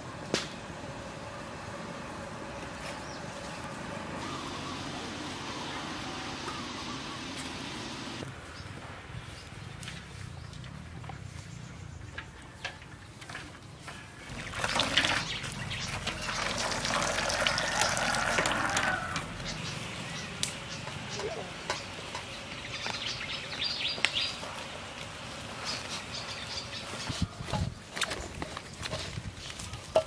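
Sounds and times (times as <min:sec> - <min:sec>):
water splashing in metal basin: 0:14.3 - 0:19.0.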